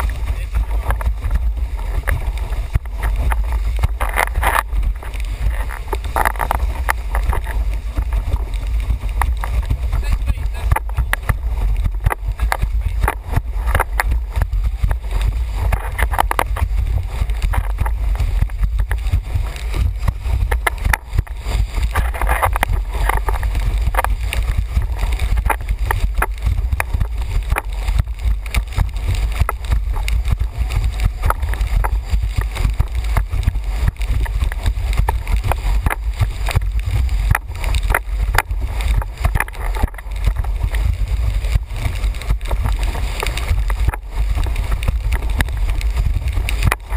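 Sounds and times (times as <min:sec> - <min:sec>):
board slapping and splashing on water: 0:00.0 - 0:46.9
wind rumble on microphone: 0:00.0 - 0:46.9.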